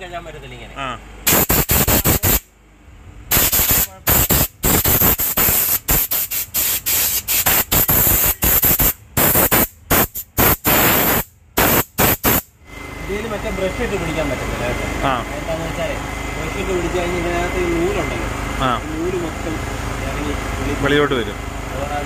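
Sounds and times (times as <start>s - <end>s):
steam gun hissing blasts: 1.3s - 2.4s, 3.3s - 12.5s.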